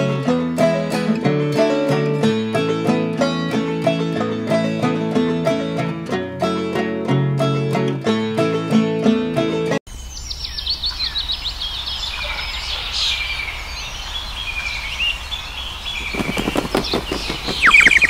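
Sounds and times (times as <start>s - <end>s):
songbirds chirping and trilling: 9.9s - 18.0s
rapid pulsing bird notes: 10.3s - 18.0s.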